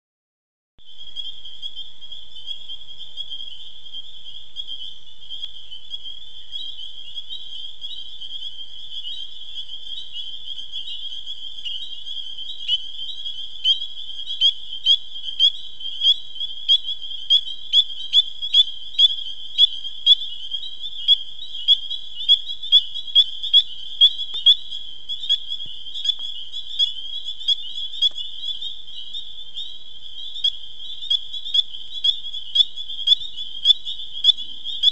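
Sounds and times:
frog chorus: 0.8 - 34.9
single frog calling loudly: 10.2 - 34.9.

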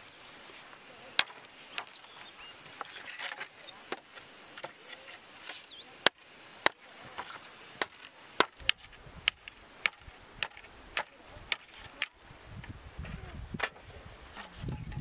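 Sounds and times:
insect trilling: 0.1 - 15.0
machete chopping bamboo: 1.2 - 2.0, 5.5 - 12.2.

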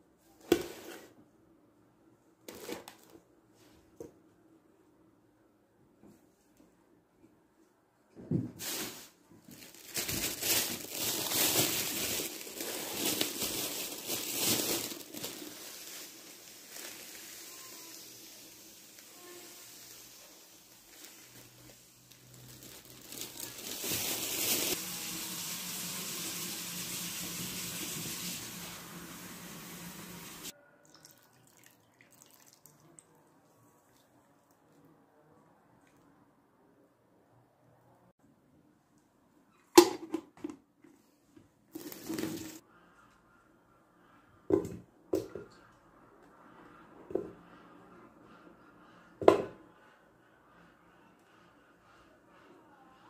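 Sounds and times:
scrape: 0.5 - 1.2
water pouring into a pot: 24.1 - 33.0.

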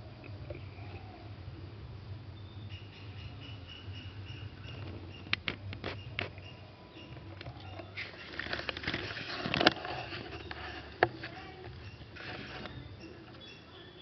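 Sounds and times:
cat scuffling with rat: 7.2 - 13.4.

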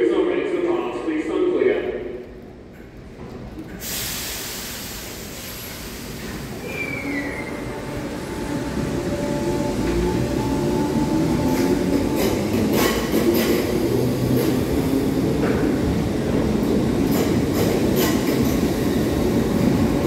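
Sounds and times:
brief falling squeal: 6.6 - 7.8.

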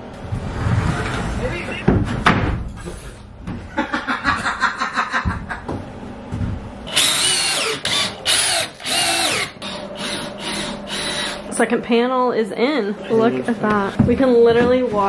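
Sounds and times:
cordless drill driving screws: 6.9 - 11.4.

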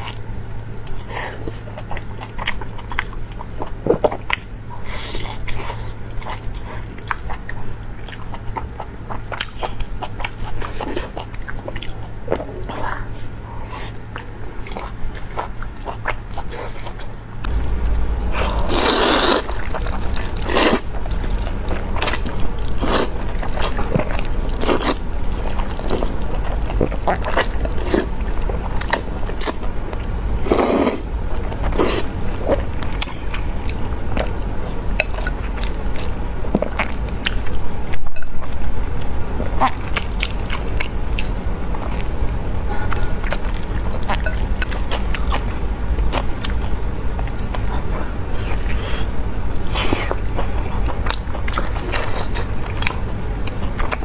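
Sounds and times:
wet chewing: 0.0 - 54.0
slurping noodles: 18.3 - 20.8, 30.4 - 31.1.

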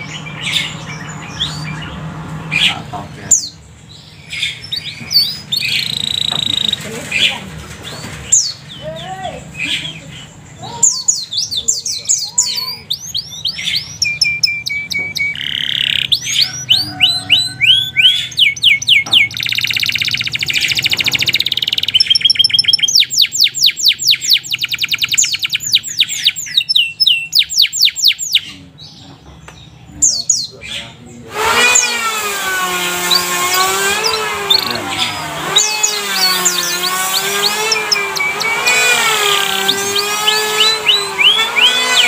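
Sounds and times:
canary singing: 0.0 - 42.0
rattling buzz: 17.6 - 23.2, 31.3 - 42.0.

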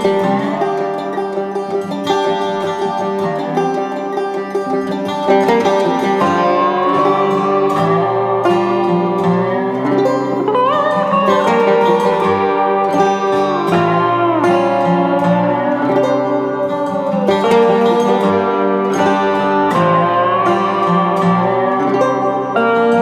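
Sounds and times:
plucked string instrument melody: 0.0 - 23.0.

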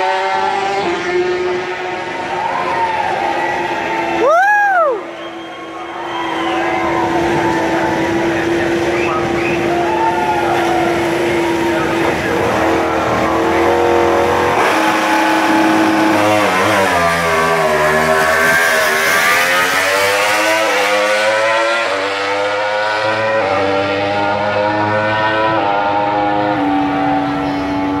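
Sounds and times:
motorcycle accelerating through gears: 0.0 - 2.1, 10.6 - 28.0
racing motorcycle engines: 0.0 - 28.0.

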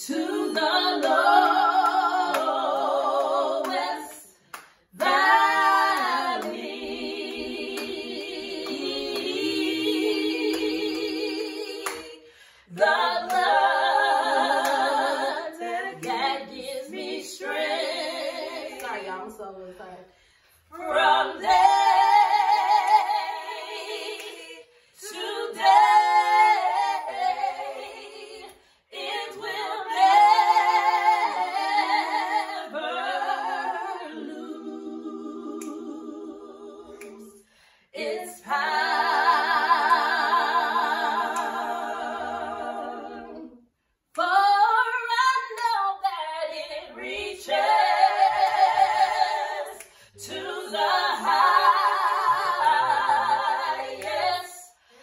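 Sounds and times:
women singing in harmony: 0.0 - 55.0
breaths between phrases: 37.4 - 38.0.

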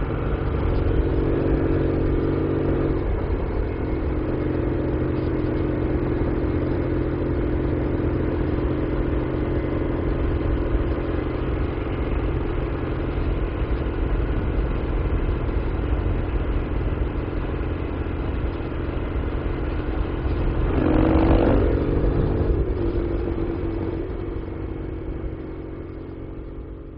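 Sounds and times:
motorcycle engine running: 0.0 - 26.9.

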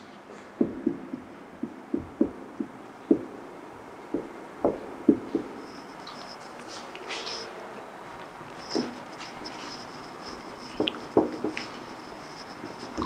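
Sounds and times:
marker knocking on whiteboard: 0.6 - 3.3, 10.8 - 11.7.

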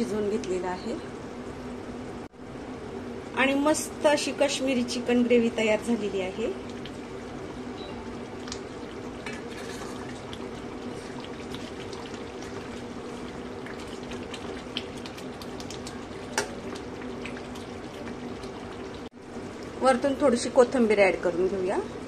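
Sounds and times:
curry simmering and bubbling: 5.5 - 20.5
ladle stirring thick gravy: 8.0 - 19.2.

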